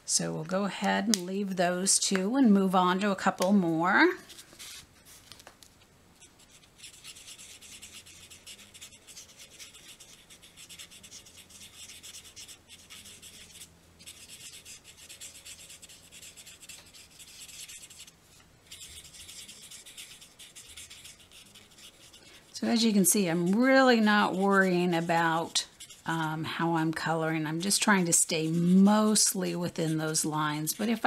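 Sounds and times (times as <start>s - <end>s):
marker scratching on cardstock: 6.2s - 18.1s, 18.7s - 31.0s.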